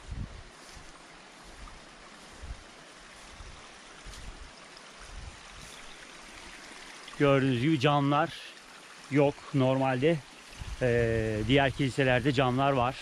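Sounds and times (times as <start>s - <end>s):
soft low thumps: 0.0s - 1.8s
mountain stream rushing: 0.0s - 13.0s.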